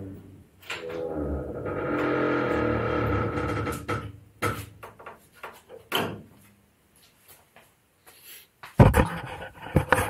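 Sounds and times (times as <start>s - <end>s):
workshop knocks and clunks: 3.9s - 6.4s.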